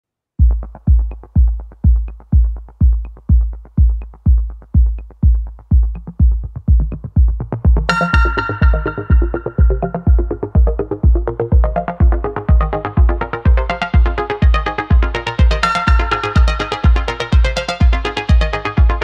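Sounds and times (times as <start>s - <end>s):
electronic dance music: 0.4s - 19.0s
kick drum beat: 0.4s - 19.0s
light ticking percussion: 0.4s - 19.0s
bright synth melody: 7.9s - 19.0s.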